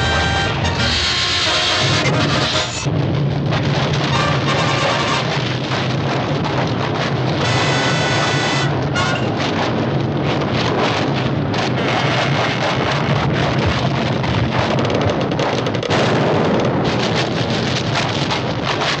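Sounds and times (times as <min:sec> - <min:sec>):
busy cartoon music score: 0:00.0 - 0:02.8
rushing clattering sound effects: 0:00.0 - 0:19.0.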